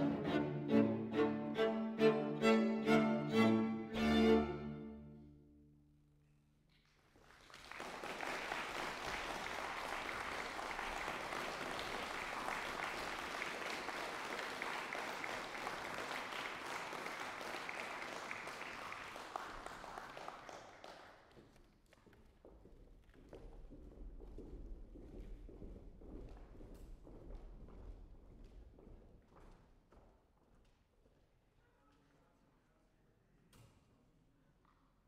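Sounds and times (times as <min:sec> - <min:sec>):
string quartet chord: 0:00.0 - 0:05.4
audience applause: 0:07.2 - 0:21.2.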